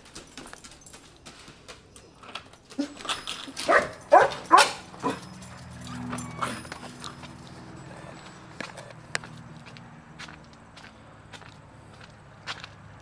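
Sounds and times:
dog barking: 3.6s - 5.3s.

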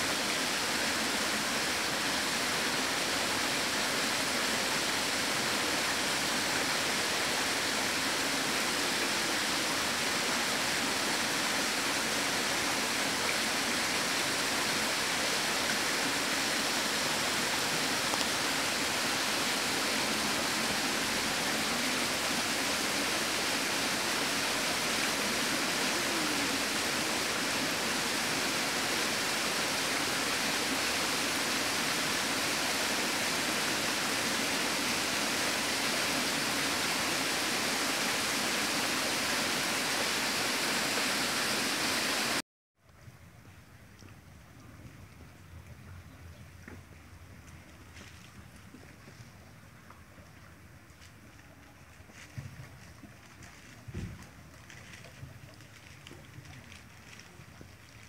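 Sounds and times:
steady rushing hiss: 0.0s - 42.4s.

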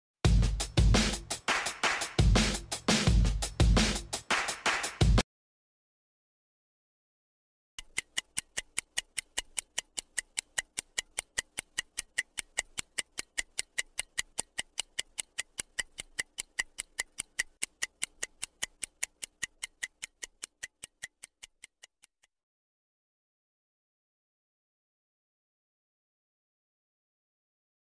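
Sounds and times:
stopwatch ticking: 7.8s - 22.4s.

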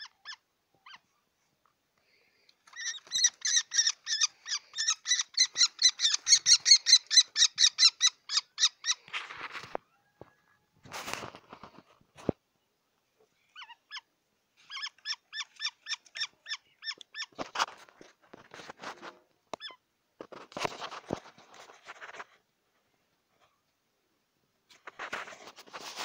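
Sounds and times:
falcon calling harshly: 2.8s - 9.0s.

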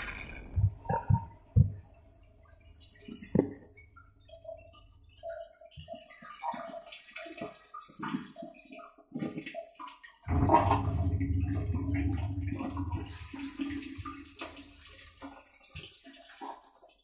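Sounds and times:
water dripping and splashing: 0.0s - 17.0s
water gurgling: 0.0s - 17.0s
low machine hum: 10.3s - 14.3s.

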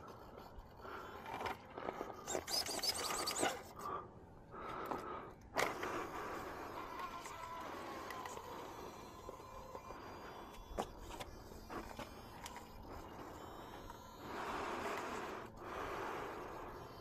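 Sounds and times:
electric motor whine: 4.9s - 17.0s.

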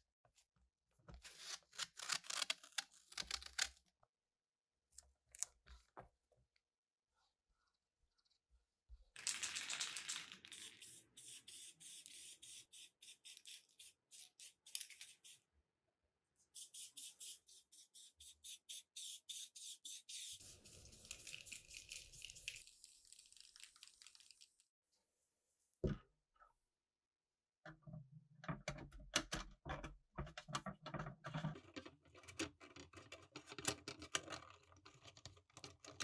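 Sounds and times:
aerosol spray can hissing: 10.5s - 15.4s, 16.6s - 22.6s.

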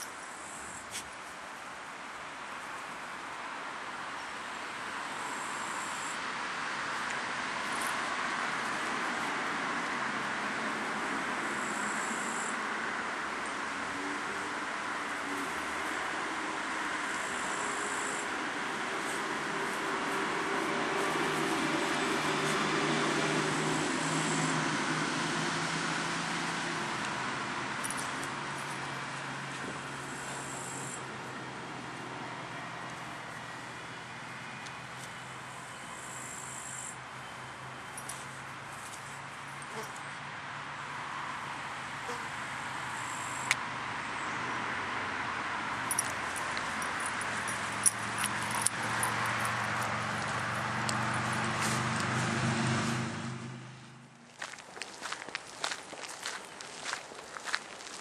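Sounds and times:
outdoor background hiss: 0.0s - 58.0s
engine humming with rushing wash: 6.0s - 35.6s, 37.0s - 54.3s
sharp clicks and light jingles: 45.8s - 51.5s.

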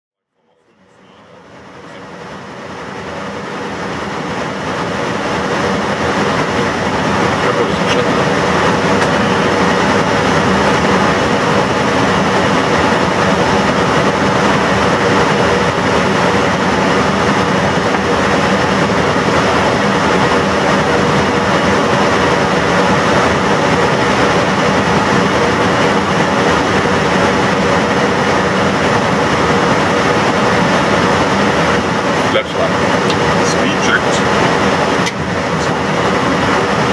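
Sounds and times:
engines humming: 0.4s - 36.9s
airflow rushing over cockpit: 0.5s - 36.9s.

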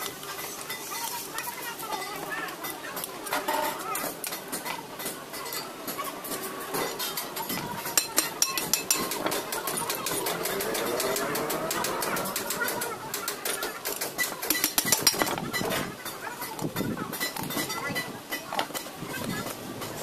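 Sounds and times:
tools tapping metal casing: 6.3s - 18.9s.

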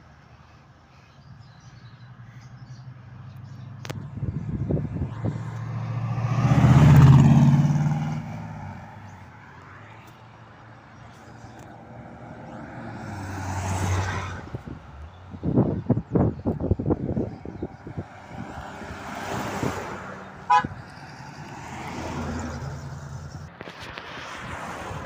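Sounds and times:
car driving past: 3.0s - 10.0s, 11.8s - 14.7s
second car passing: 3.3s - 10.1s, 11.5s - 15.0s.

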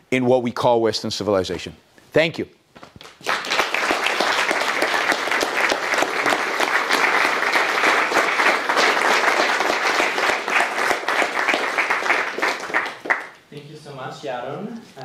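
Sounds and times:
audience applauding: 3.0s - 13.4s.

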